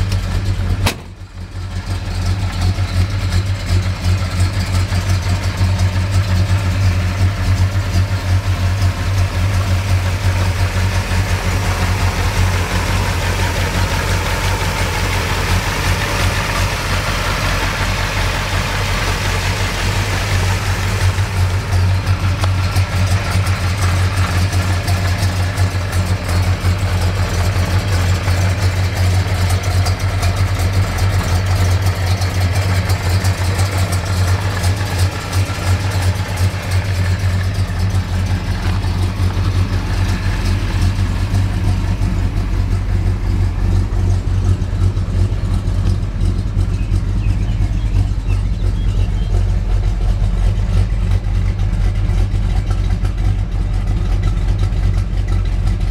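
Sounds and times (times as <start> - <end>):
car engine idling: 0.0 - 55.9.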